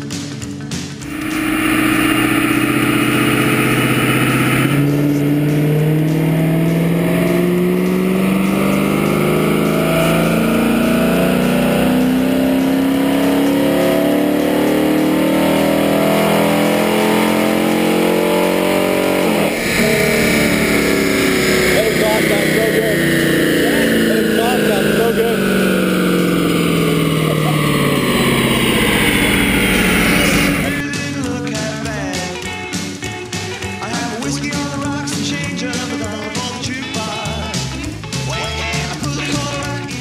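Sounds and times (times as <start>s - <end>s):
car engine revving under load: 1.0s - 30.8s.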